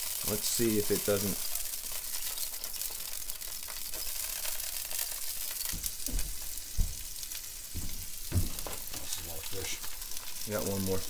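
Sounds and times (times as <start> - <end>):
fish sizzling in hot oil: 0.0 - 11.0
dull bumps from handling: 7.8 - 9.1.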